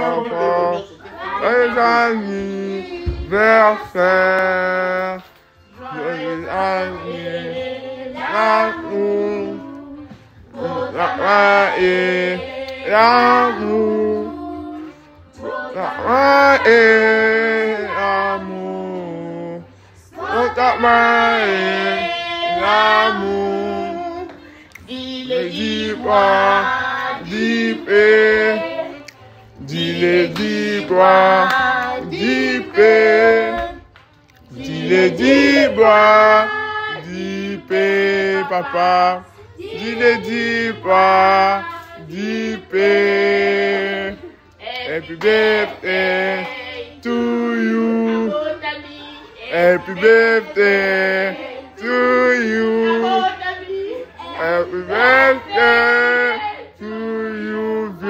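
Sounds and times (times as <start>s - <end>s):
voices singing birthday song: 0.0s - 58.0s
singer breathing: 24.4s - 24.8s.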